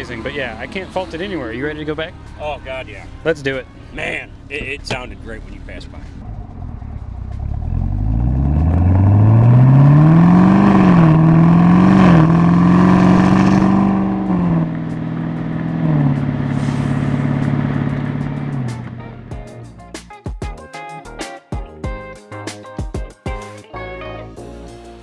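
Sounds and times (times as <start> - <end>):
car engine accelerating: 1.8 - 19.7.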